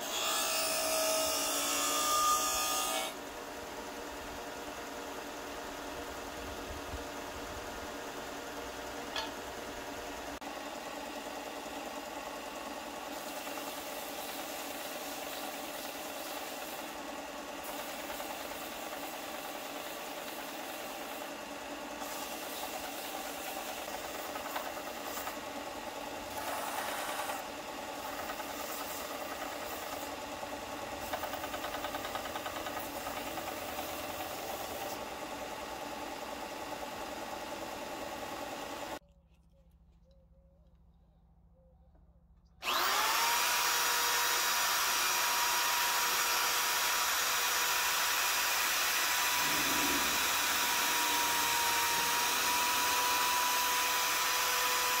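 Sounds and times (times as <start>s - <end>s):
belt sander running: 0.0s - 39.0s, 42.6s - 55.0s.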